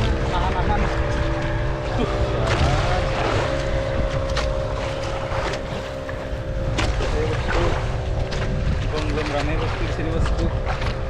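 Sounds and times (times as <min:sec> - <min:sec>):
boat engine running: 0:00.0 - 0:11.0
wind on microphone: 0:00.0 - 0:11.0.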